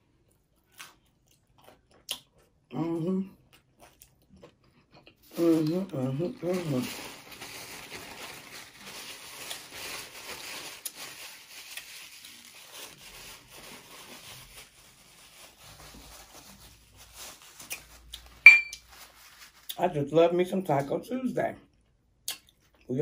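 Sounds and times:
paper napkin rustling: 6.4s - 19.7s.

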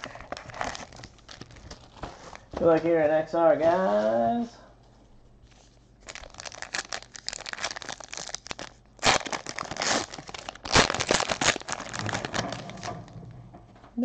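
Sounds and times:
plastic and foil wrapping crinkling: 0.0s - 2.6s, 5.5s - 13.1s.

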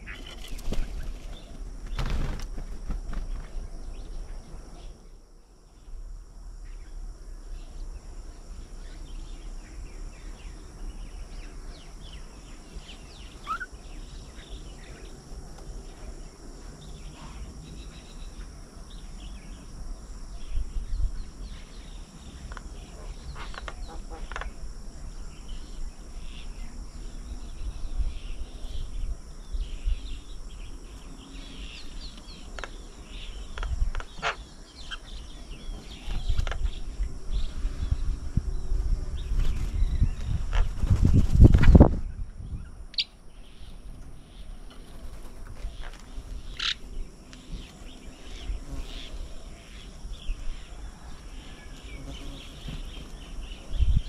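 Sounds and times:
high-pitched insect hum: 0.0s - 54.0s
bird chirps and calls: 12.9s - 14.7s.

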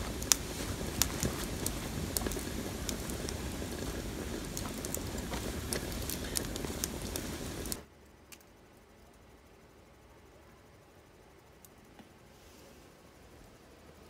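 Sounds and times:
sharp fire pops: 0.0s - 7.8s
wood fire crackling in a stove: 0.0s - 14.0s.

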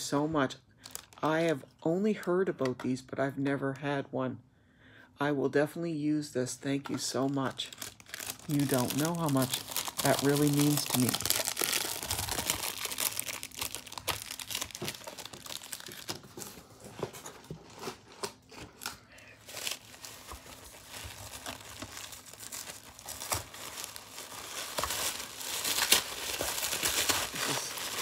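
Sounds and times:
wrapping paper crinkling and tearing: 0.8s - 1.4s, 7.2s - 28.0s.

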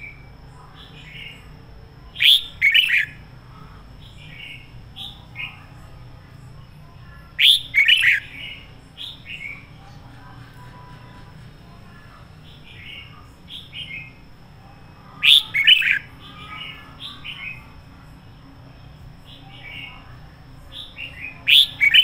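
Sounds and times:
bird song bursts: 2.2s - 3.2s, 7.4s - 9.7s, 15.2s - 17.6s, 20.8s - 22.0s.

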